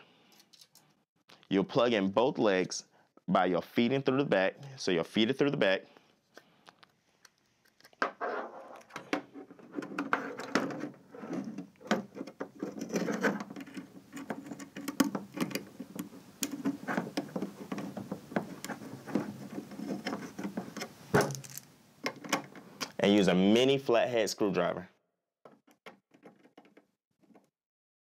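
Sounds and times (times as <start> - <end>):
clicks and scrapes on plastic case: 8.8 - 21.5.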